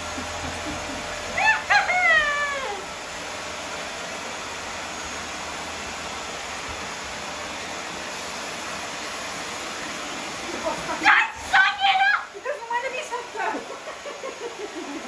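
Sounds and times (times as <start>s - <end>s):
high whining cry: 0.0s - 3.0s
vacuum cleaner motor running: 0.0s - 15.0s.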